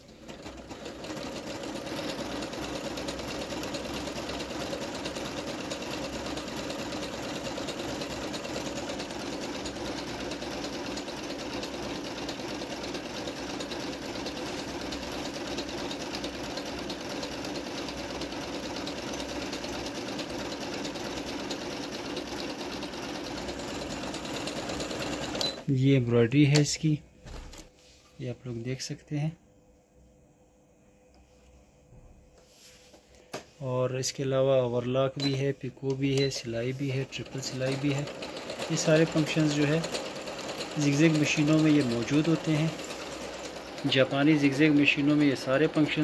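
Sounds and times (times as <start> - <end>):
sewing machine running: 0.0 - 25.7, 36.4 - 46.0.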